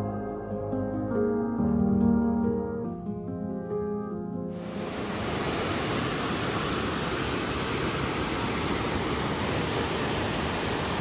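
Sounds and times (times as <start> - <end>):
waterfall rushing: 4.6 - 11.0.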